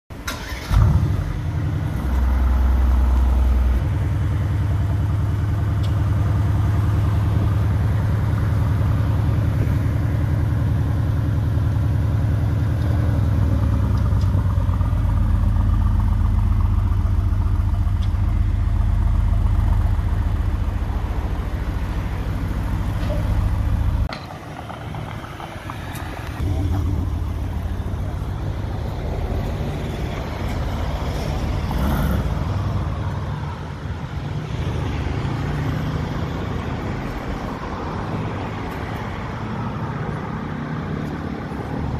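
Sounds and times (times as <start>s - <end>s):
car engine idling: 0.1s - 31.6s
car engine starting: 0.1s - 33.8s
car pulling away: 0.2s - 41.9s.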